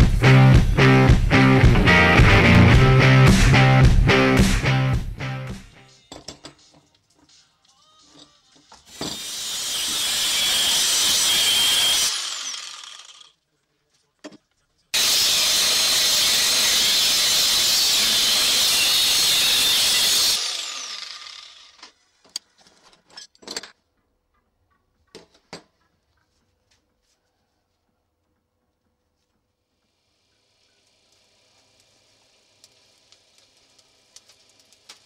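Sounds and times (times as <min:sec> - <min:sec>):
angle grinder cutting steel: 0:08.9 - 0:13.3, 0:15.0 - 0:22.0
grinder disc spinning down: 0:08.9 - 0:13.3, 0:15.0 - 0:21.9.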